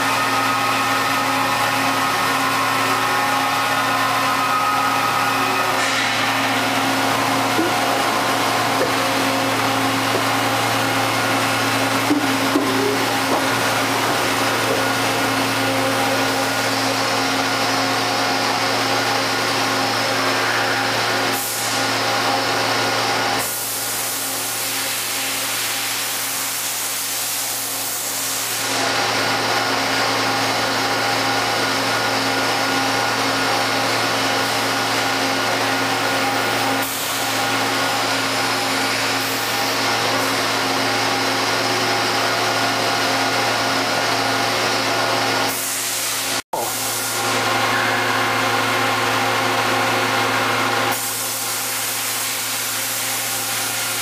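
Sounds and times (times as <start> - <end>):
machine hum: 0.0 - 23.4.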